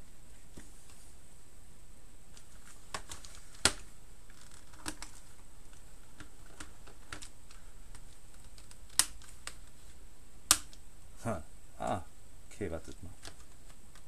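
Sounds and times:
plastic keyboard clicks and taps: 0:06.1 - 0:07.3.

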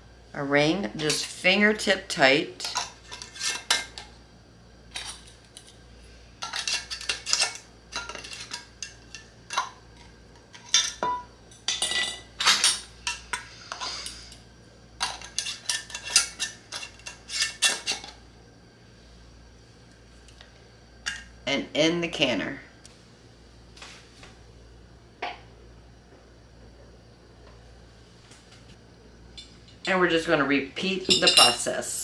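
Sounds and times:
metal lids clinking on glass jars: 0:31.1 - 0:31.8.

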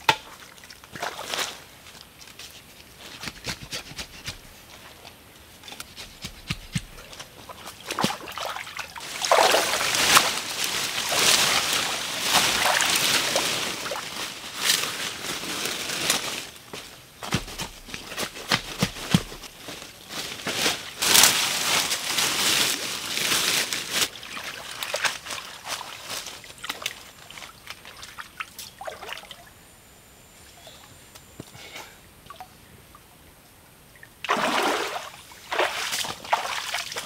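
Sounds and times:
leafy branches rustling: 0:01.0 - 0:27.9
water sloshing around wading legs: 0:05.8 - 0:14.1, 0:34.2 - 0:37.0.

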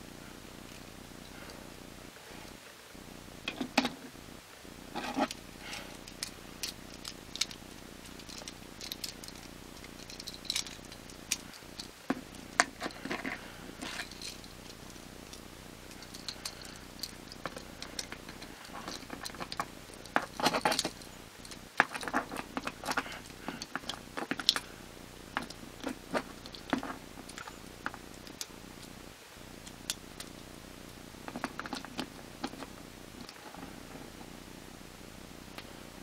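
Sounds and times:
plastic toy parts clicking: 0:06.1 - 0:11.5, 0:16.1 - 0:24.7.

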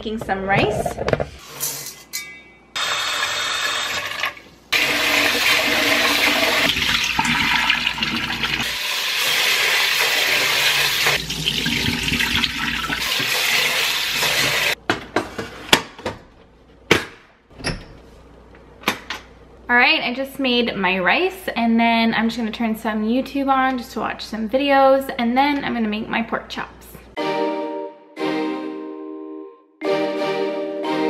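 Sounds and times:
tap water running into pot: 0:03.6 - 0:14.8.

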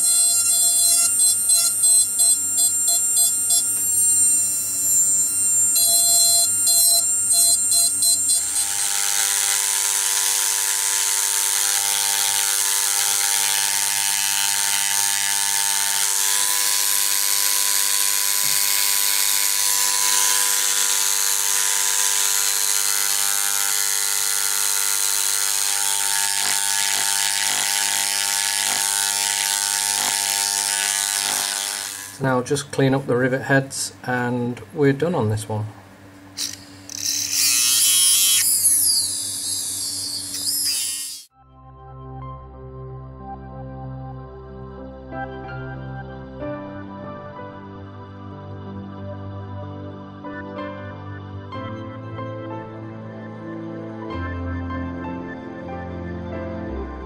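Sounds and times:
small power tool whirring: 0:00.0 - 0:32.3, 0:36.2 - 0:41.3.

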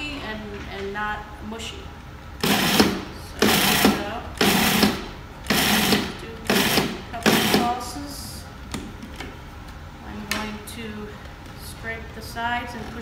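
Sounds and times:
food processor pulsing: 0:02.4 - 0:07.6.

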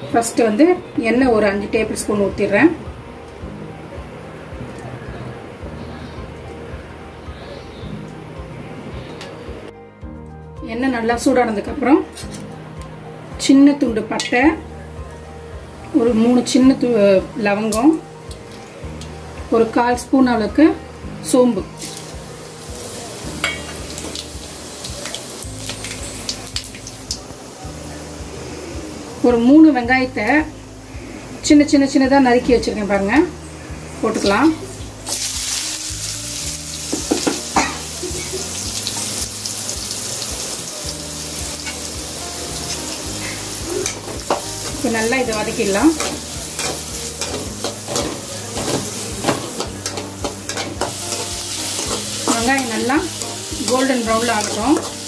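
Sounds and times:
spices sizzling in hot oil: 0:13.4 - 0:55.0.

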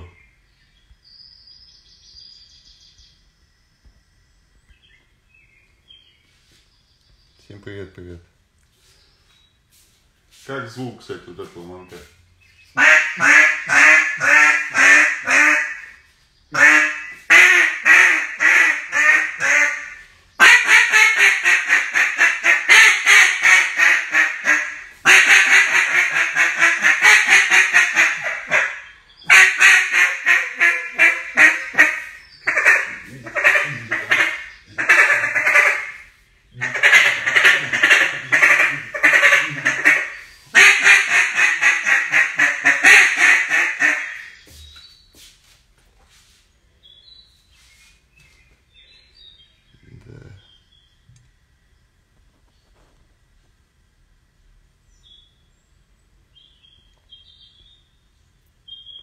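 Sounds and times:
duck call quacks: 0:12.8 - 0:44.4.

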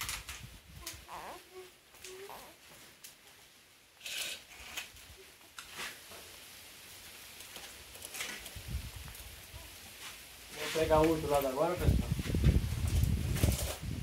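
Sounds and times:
hose and wood scraping: 0:04.0 - 0:14.0.

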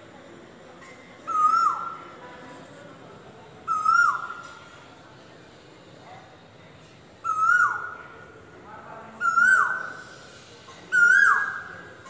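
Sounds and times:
bird calling with falling whistle: 0:01.3 - 0:02.0, 0:03.7 - 0:04.4, 0:07.2 - 0:07.9, 0:09.2 - 0:10.1, 0:10.9 - 0:11.7.

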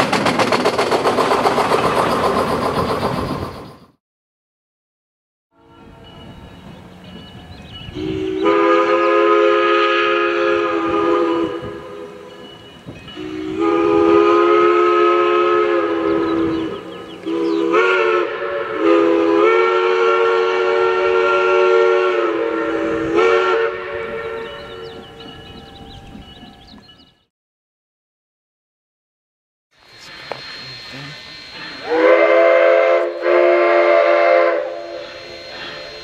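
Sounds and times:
train air horn blasts: 0:05.6 - 0:06.2, 0:07.9 - 0:12.4, 0:13.2 - 0:25.0, 0:30.1 - 0:36.0.

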